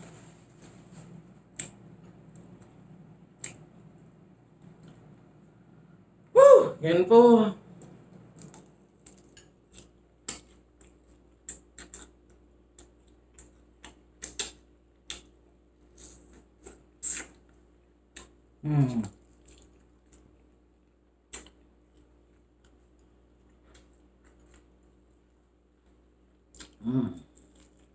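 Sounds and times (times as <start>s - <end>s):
person chewing food: 7.8s - 27.9s
low voice murmur: 26.8s - 27.3s.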